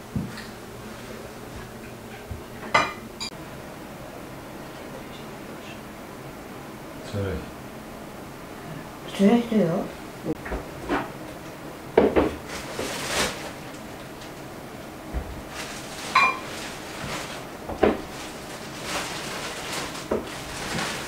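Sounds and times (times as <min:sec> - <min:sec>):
cutlery and dishes clinking: 0:16.1 - 0:16.4.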